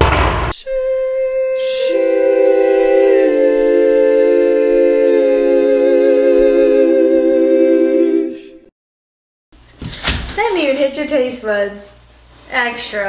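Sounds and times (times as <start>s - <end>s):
a cappella choir singing chords: 0.6s - 8.7s.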